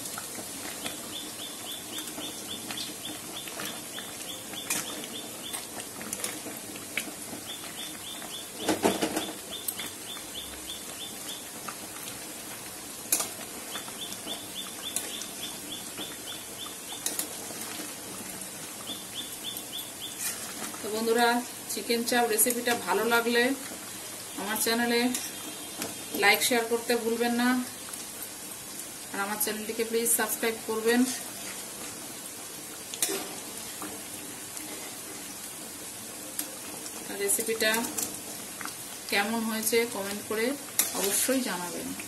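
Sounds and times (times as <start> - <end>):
gravy bubbling: 0.0 - 21.8
metal spoon stirring in a pan: 2.7 - 7.8, 13.0 - 18.0, 20.0 - 21.1, 25.0 - 26.2, 32.9 - 33.8, 40.1 - 41.4
bird chirping: 13.8 - 17.0.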